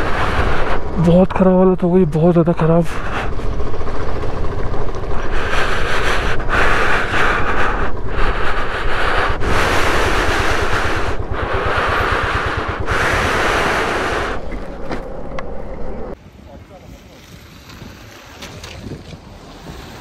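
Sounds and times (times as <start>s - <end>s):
wind on microphone: 0.0s - 1.4s, 2.9s - 16.2s
motorcycle engine running: 0.0s - 16.2s.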